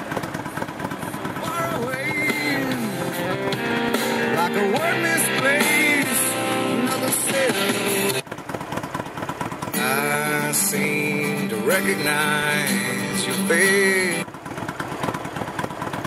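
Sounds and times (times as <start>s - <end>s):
motorcycle engine idling: 0.0s - 16.0s
song with singing over speakers: 1.4s - 8.2s, 9.7s - 14.3s.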